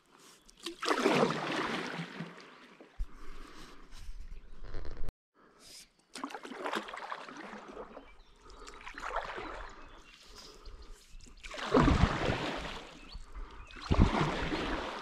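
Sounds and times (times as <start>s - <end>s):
paddle splashing in water: 0.6s - 3.0s, 6.2s - 10.0s, 11.3s - 13.1s, 13.8s - 15.0s.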